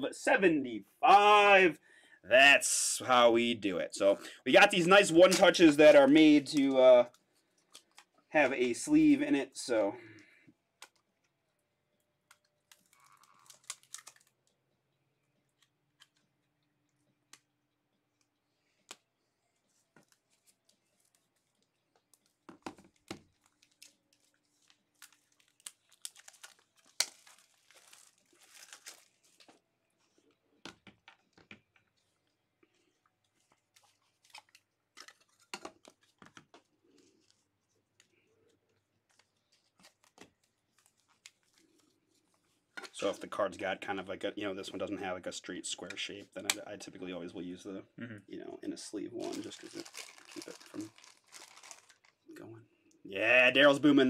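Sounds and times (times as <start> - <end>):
plastic crinkling: 4.7 - 8.3, 12.2 - 14.6, 18.2 - 43.1, 49.2 - 52.3.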